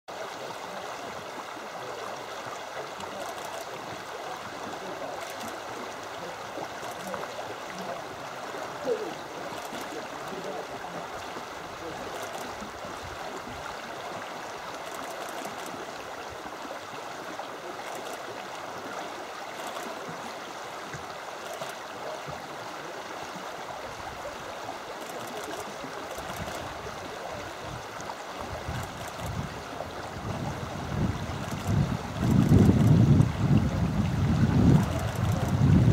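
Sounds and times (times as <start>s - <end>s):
stream water rushing: 0.1s - 35.9s
wind rumble on microphone: 28.4s - 35.9s.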